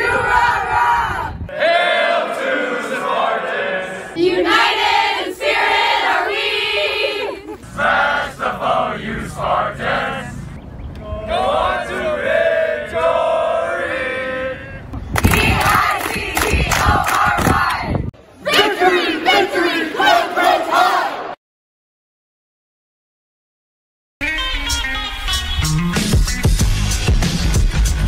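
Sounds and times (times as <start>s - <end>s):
students chanting in unison: 0.0s - 10.4s, 11.2s - 21.4s.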